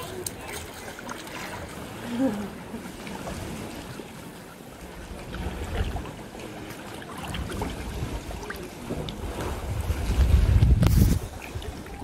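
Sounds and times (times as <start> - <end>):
sea water lapping: 0.0 - 12.0
small splashes: 0.0 - 12.0
wind rumble on microphone: 7.2 - 12.0.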